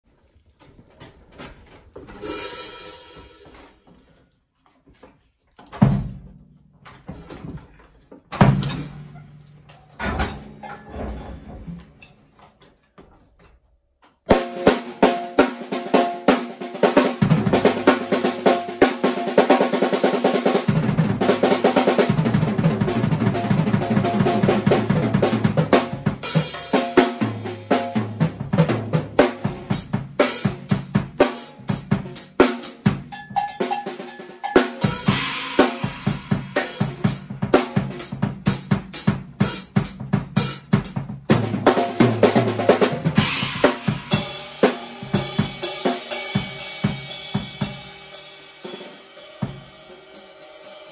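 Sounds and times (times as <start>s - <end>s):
snare and tom drum runs: 14.3s - 50.2s.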